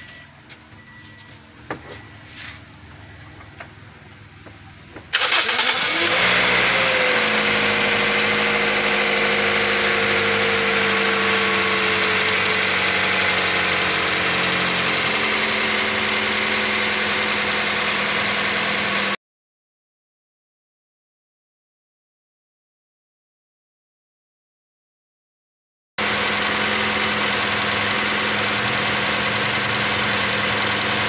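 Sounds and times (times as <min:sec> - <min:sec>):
car engine starting and idling: 0:00.0 - 0:19.2, 0:26.0 - 0:31.0.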